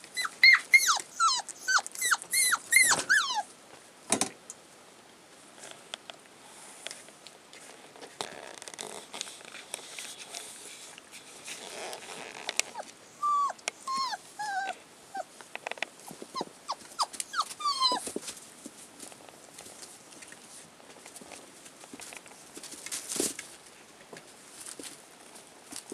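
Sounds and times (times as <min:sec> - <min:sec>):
puppies scuffling and growling: 0:00.1 - 0:03.4, 0:07.5 - 0:25.9
puppies yelping and whining: 0:00.1 - 0:03.5, 0:12.7 - 0:15.3, 0:16.0 - 0:18.2.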